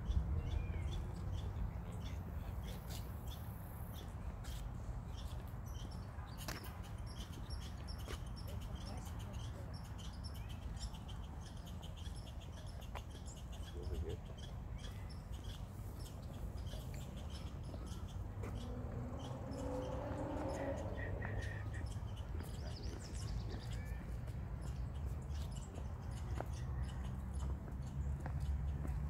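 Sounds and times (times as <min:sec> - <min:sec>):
small birds chirping: 0:00.0 - 0:29.0
steady low rumble: 0:16.4 - 0:23.6.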